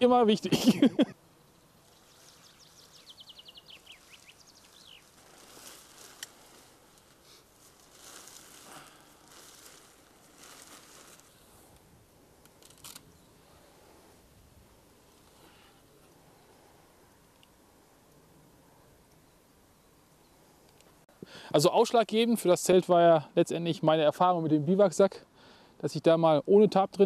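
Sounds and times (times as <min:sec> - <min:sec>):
nylon tent fabric rustling: 0:01.8 - 0:14.2
bird trilling: 0:02.0 - 0:05.2.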